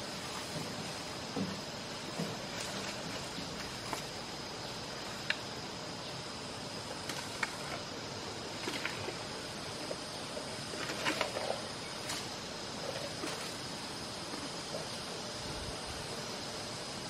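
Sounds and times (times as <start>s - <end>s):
elephant crunching grass: 0.0s - 4.3s, 6.9s - 14.8s
outdoor hiss: 0.0s - 17.0s.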